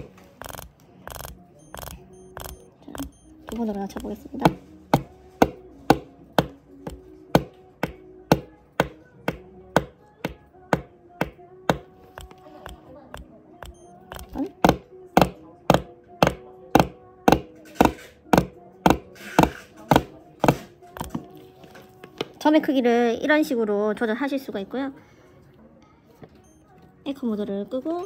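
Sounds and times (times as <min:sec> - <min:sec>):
tattoo machine needle tapping: 0:00.4 - 0:04.1, 0:11.7 - 0:14.8.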